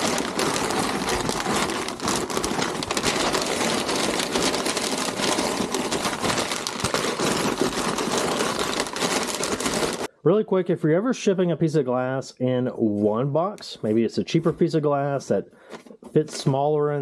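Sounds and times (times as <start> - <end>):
packing paper crinkling: 0.0 - 10.1.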